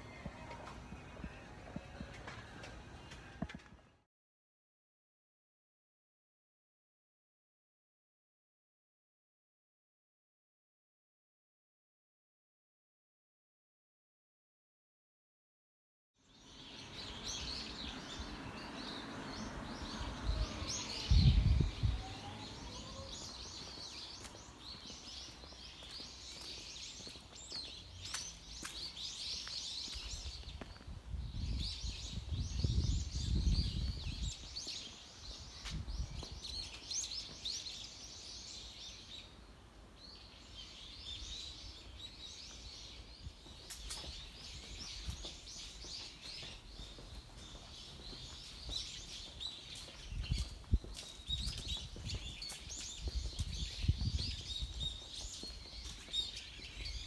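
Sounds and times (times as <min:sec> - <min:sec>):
small birds chirping: 0:16.2 - 0:57.0.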